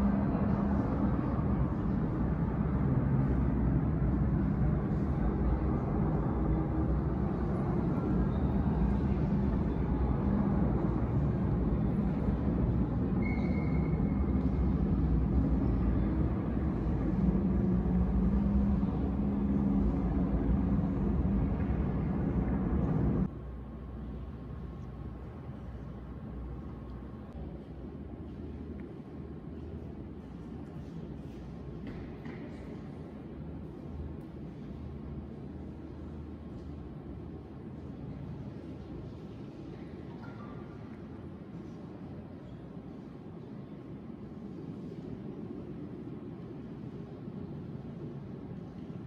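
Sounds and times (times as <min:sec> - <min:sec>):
low hum: 0:00.0 - 0:31.7.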